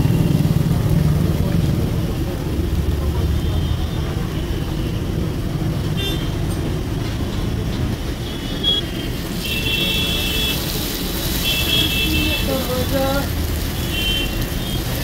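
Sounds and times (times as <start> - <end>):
street traffic rumble: 0.0 - 15.0
vehicle horns honking: 5.9 - 6.5, 8.2 - 10.8, 11.4 - 13.0, 13.8 - 15.0
batter sizzling in hot oil: 8.8 - 15.0.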